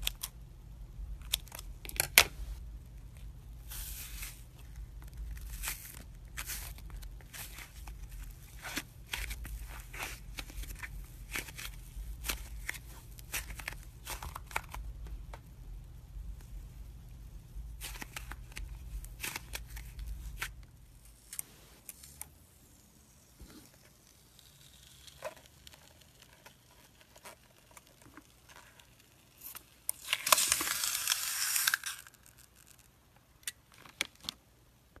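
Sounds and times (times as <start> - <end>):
slime squishing and crackling: 23.8 - 32.9
slime tearing: 24.1 - 32.9.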